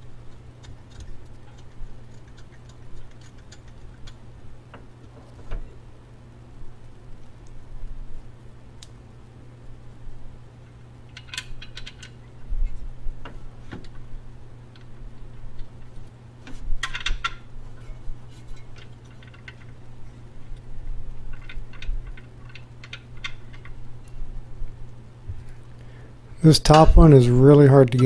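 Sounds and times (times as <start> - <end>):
steady low hum: 0.0 - 28.0
metallic clinks of hand tools: 8.8 - 9.1.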